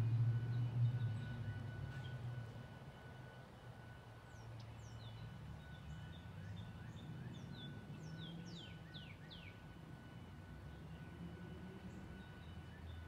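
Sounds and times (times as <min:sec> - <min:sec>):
songbirds chirping: 0:04.2 - 0:09.8.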